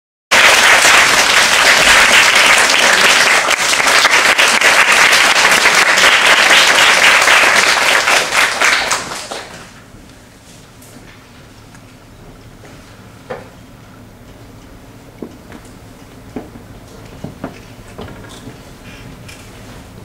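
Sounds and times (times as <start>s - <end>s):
audience applauding: 0.3s - 9.8s.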